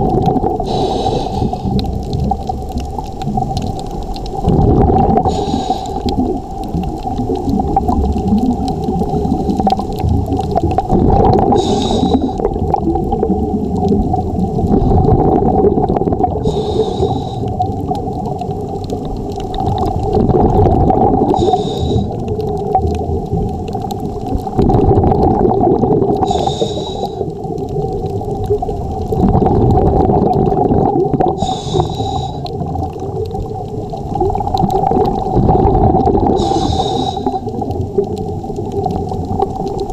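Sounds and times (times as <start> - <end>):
exhaled bubbles gurgling: 0.0 - 39.9
regulator inhalation hiss: 0.6 - 1.7, 5.3 - 6.1, 11.6 - 12.4, 16.5 - 17.5, 21.4 - 22.2, 26.2 - 27.3, 31.4 - 32.5, 36.4 - 37.5.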